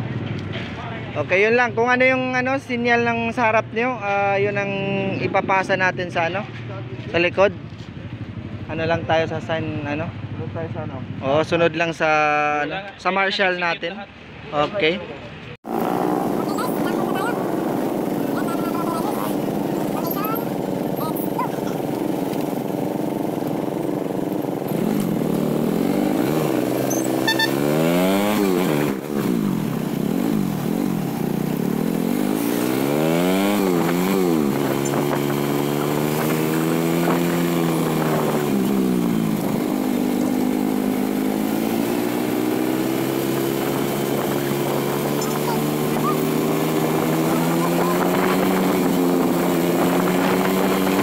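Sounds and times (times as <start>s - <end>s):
motorcycle engine accelerating: 15.6s - 51.0s.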